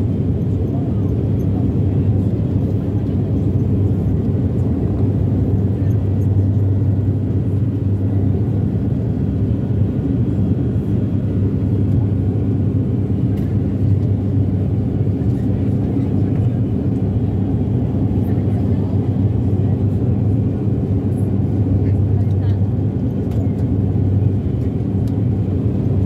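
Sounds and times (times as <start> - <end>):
faint engine whine: 0.0 - 26.0
propeller aircraft cabin drone: 0.0 - 26.0.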